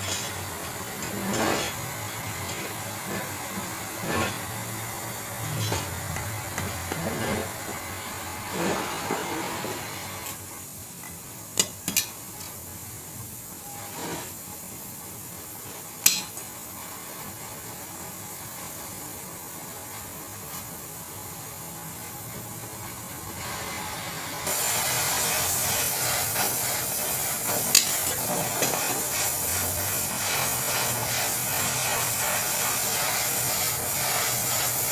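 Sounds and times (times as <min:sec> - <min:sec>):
welding torch hissing: 0:00.0 - 0:34.9.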